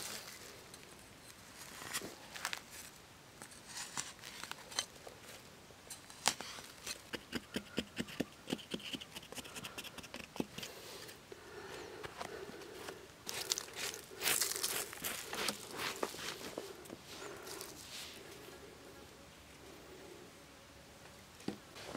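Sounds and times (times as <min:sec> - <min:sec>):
wooden stick jabbing soil: 0:06.2 - 0:10.7, 0:13.2 - 0:16.6
hand rubbing loose soil: 0:06.2 - 0:18.7
scrapes and knocks in dirt: 0:13.3 - 0:16.7.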